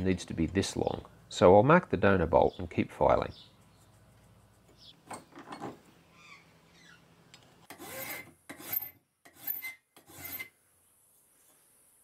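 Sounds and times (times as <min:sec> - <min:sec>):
file scraping on steel: 0:07.7 - 0:10.6.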